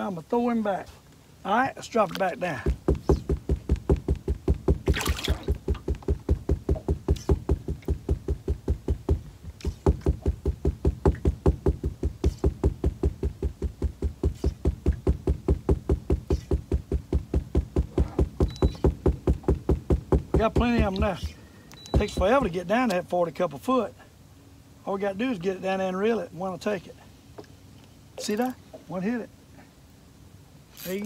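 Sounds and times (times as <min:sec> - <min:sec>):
sharp rustling click: 0:09.6 - 0:10.1, 0:30.7 - 0:31.0.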